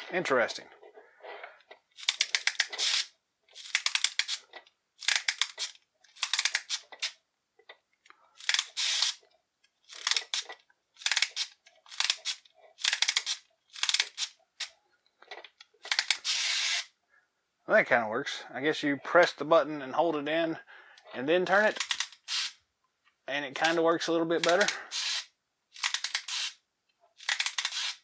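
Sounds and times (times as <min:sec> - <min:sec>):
wind-up knob ratcheting: 0:02.0 - 0:04.4, 0:05.0 - 0:07.1, 0:08.4 - 0:09.2, 0:09.9 - 0:14.3, 0:15.8 - 0:16.9, 0:21.7 - 0:22.5, 0:24.4 - 0:25.2, 0:25.8 - 0:26.6, 0:27.2 - 0:28.0.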